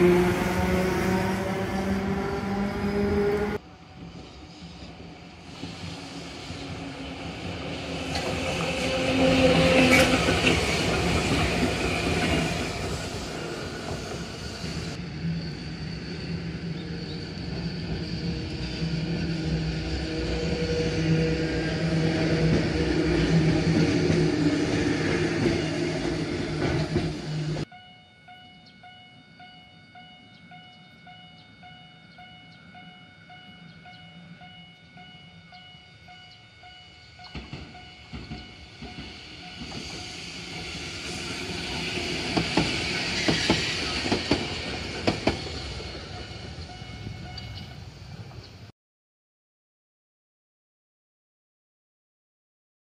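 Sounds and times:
tram wheels clacking on rails: 0.0 - 15.0, 16.7 - 27.7, 37.2 - 48.5
road traffic: 0.0 - 27.7, 36.9 - 48.6
tram running with hum: 0.0 - 48.7.

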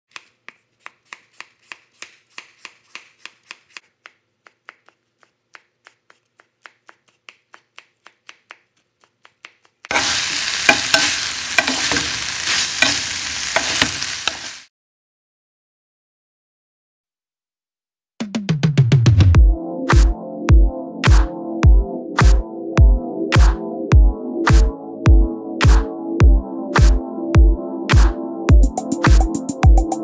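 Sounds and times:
cleaver chopping on wooden board: 0.1 - 3.6
chopsticks clicking: 0.1 - 12.2
food sizzling in hot pan: 9.9 - 14.7.

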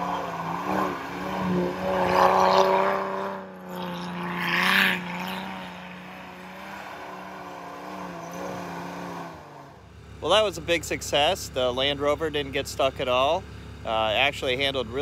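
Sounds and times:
car engine revving: 0.0 - 11.9
tyres churning through snow: 0.0 - 15.0.

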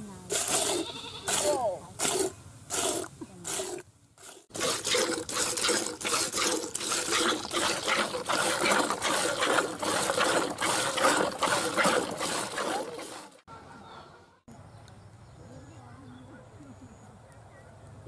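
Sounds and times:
milk squirting into pail: 2.0 - 13.4.

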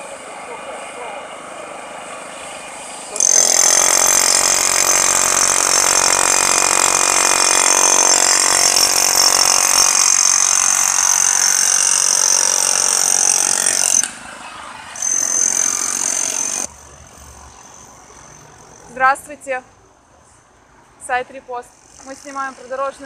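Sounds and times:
demolition hammer chiselling asphalt: 3.0 - 14.1, 15.0 - 16.7.

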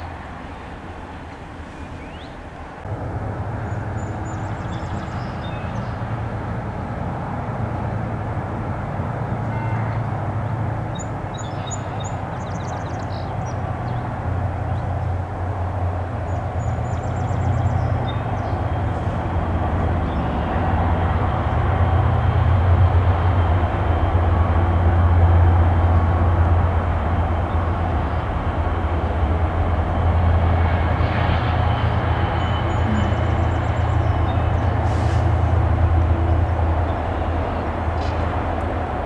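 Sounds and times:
diesel locomotive engine droning: 0.0 - 39.0.

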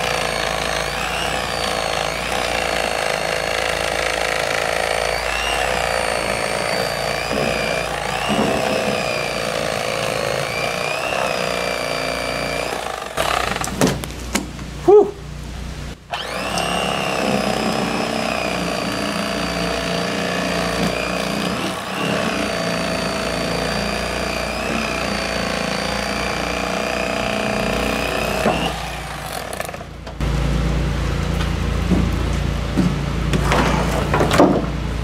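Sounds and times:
electric fillet knife motor whine: 16.1 - 19.5.

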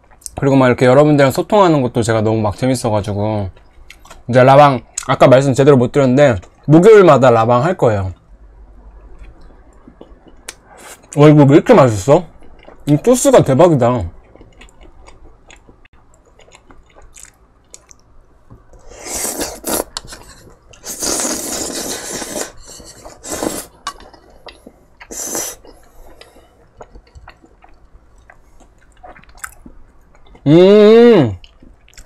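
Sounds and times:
chewing: 8.9 - 10.6, 12.3 - 13.0, 14.2 - 18.1, 19.6 - 30.5
slurping noodles: 18.9 - 23.7, 25.1 - 25.7.

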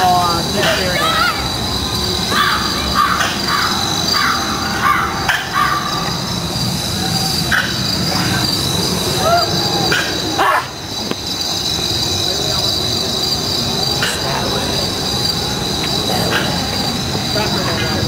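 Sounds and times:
constant high hum: 0.0 - 18.0
crows cawing: 2.3 - 6.0.

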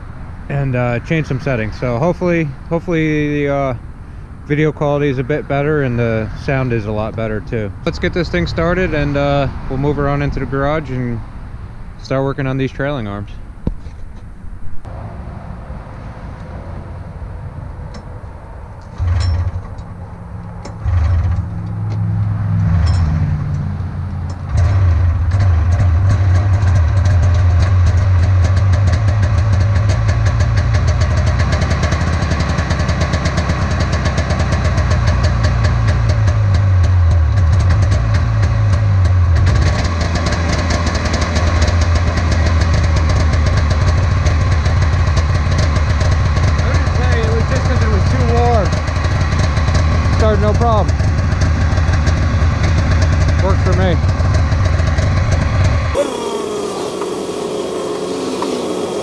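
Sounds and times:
snowmobile engine starting and idling: 18.9 - 21.8, 24.3 - 59.0.

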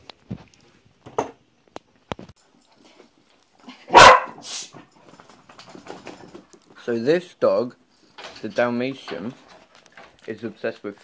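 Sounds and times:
dog barking: 3.9 - 4.4.

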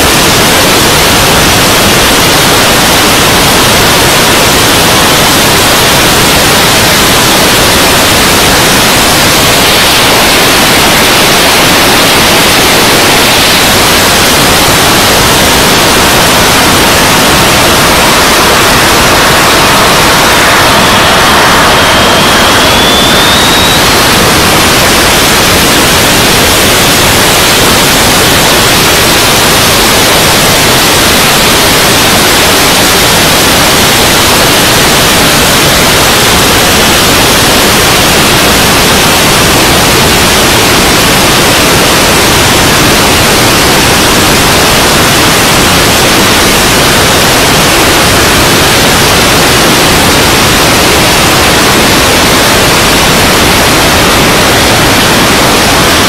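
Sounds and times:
airflow and engine rushing hiss: 0.0 - 37.2.

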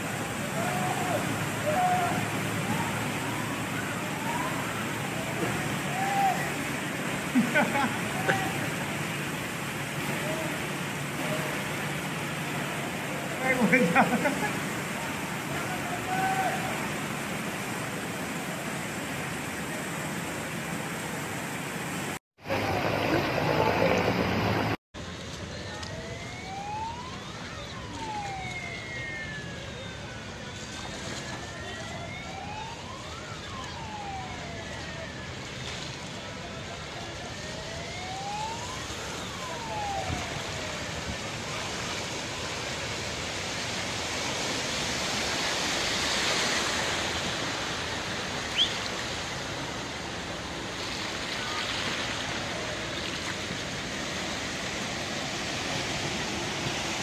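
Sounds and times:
siren wailing: 0.0 - 9.2, 25.5 - 50.7
floodwater rushing: 0.0 - 57.0.

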